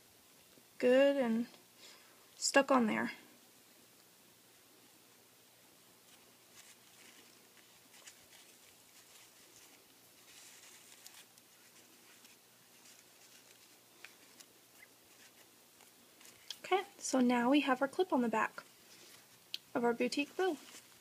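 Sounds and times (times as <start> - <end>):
fingers rustling ribbon: 6.0 - 16.6.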